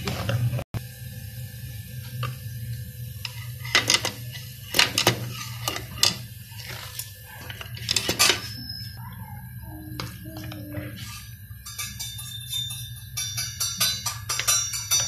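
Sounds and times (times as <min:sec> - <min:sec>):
steady low hum: 0:00.0 - 0:15.0
spatula scraping a metal pot: 0:03.2 - 0:07.0, 0:10.0 - 0:15.0.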